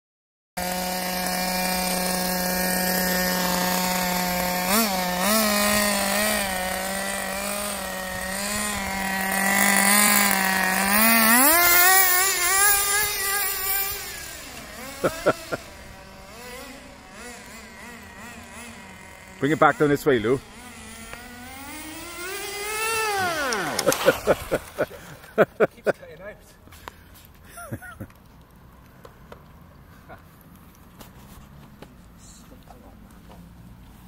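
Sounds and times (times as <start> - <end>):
small nitro engine idling and revving: 0.6 - 25.9.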